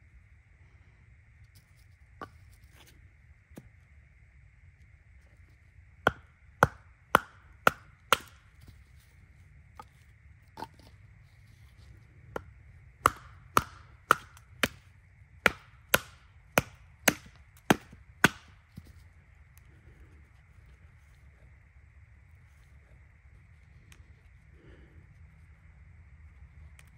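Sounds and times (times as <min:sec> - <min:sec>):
baton striking hatchet: 0:06.1 - 0:08.4, 0:12.4 - 0:14.8, 0:15.4 - 0:18.6.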